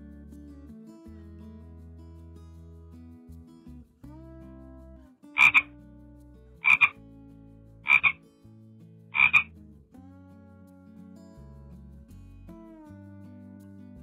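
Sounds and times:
soft background music: 0.0s - 14.0s
frog croaking: 5.4s - 5.7s, 6.6s - 7.0s, 7.8s - 8.2s, 9.2s - 9.5s.

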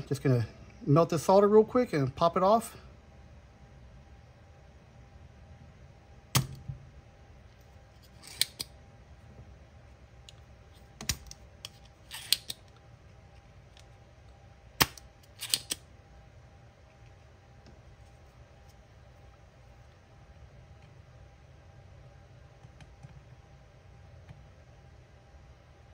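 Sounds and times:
solder sucker snap: 14.8s - 15.8s.

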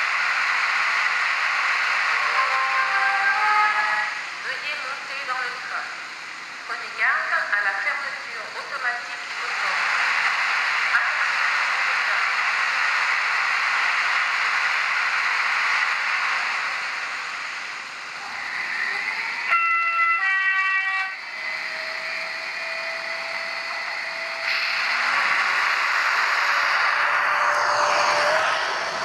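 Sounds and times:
model locomotive hissing running sound: 0.0s - 29.0s
two-note train horn: 19.5s - 21.2s.

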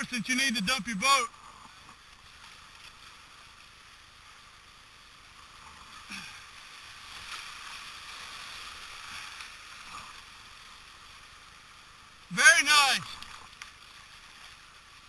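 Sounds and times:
river rapid rushing: 12.2s - 13.2s.

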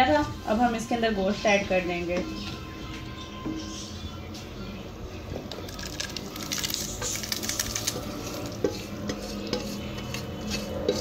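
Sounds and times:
hot oil sizzling: 5.5s - 11.0s
spatula scraping metal pot: 5.6s - 11.0s.

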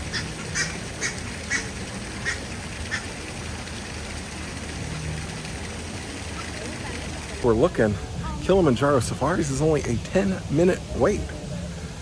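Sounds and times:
steady background noise: 0.0s - 12.0s
duck quacking: 0.1s - 3.1s.

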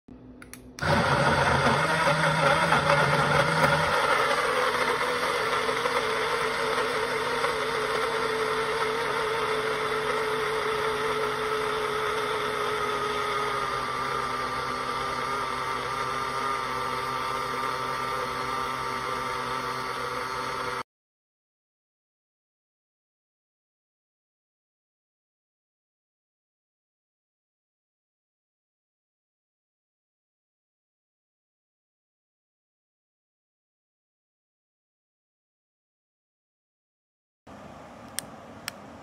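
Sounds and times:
blender chopping fruit rumble: 0.8s - 20.8s
blender motor whining: 0.8s - 20.8s.

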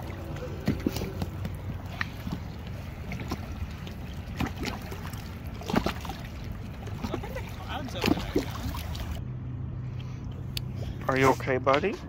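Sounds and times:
waves lapping against rocks: 0.0s - 9.2s
steady low rumble: 0.0s - 12.0s.

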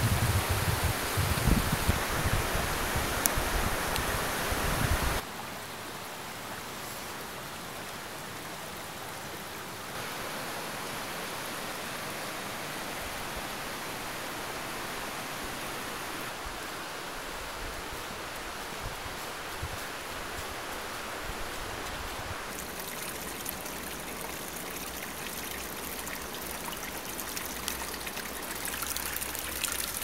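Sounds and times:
river rushing over rocks: 9.9s - 30.0s.

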